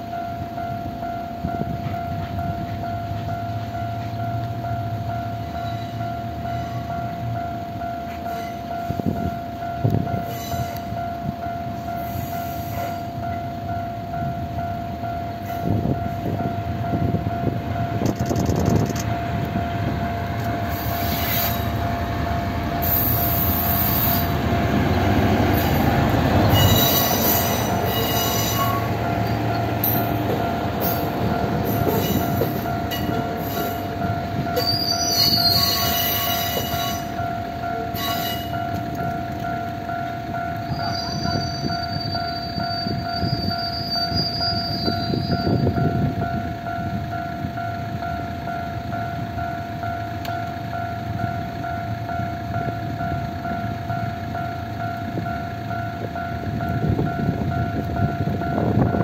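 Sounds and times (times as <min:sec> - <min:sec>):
diesel railcar engine rumble: 0:00.0 - 0:59.0
level-crossing alarm ringing: 0:00.0 - 0:59.0
high-pitched wheel squeal: 0:05.6 - 0:06.9, 0:10.1 - 0:10.9, 0:20.7 - 0:21.9, 0:22.8 - 0:24.4, 0:26.4 - 0:29.0, 0:31.6 - 0:33.9, 0:34.5 - 0:37.2, 0:37.9 - 0:38.8, 0:40.6 - 0:45.9.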